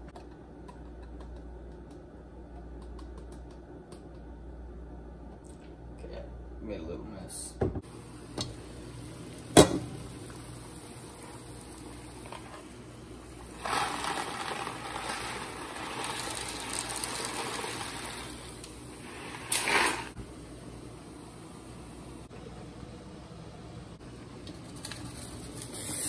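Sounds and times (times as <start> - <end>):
water boiling in a pot: 7.9 - 22.3
dry pasta pouring into water: 13.2 - 20.1.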